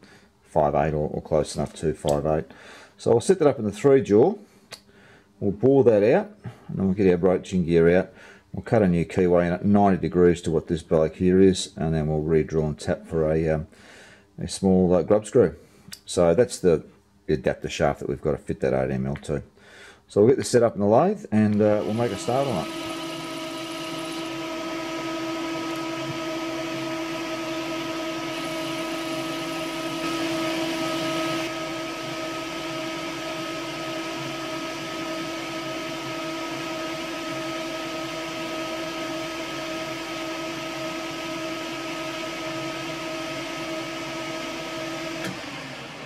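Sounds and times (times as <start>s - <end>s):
metal lathe motor whine: 21.5s - 46.0s.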